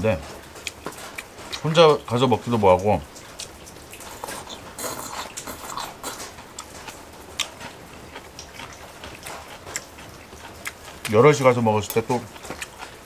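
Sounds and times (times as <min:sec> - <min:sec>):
person chewing food: 0:00.4 - 0:01.8, 0:03.1 - 0:13.0
wet mouth smacking and clicking: 0:03.2 - 0:11.2, 0:11.9 - 0:13.0.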